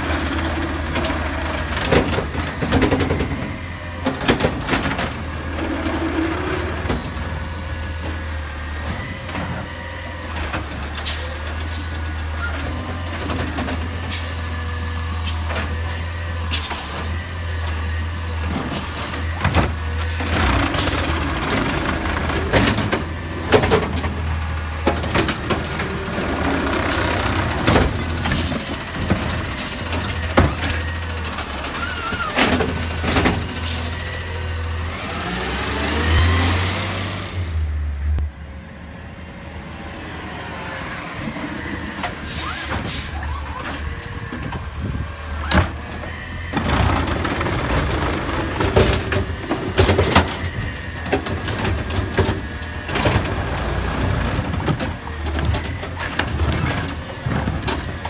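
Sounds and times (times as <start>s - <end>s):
garbage truck engine running: 0.0s - 58.0s.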